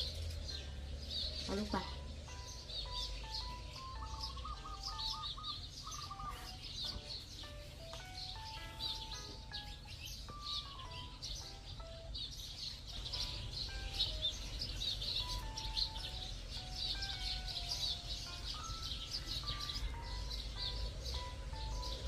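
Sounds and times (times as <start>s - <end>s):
simple tune of held notes: 0.0s - 22.0s
small birds chirping: 0.0s - 22.0s.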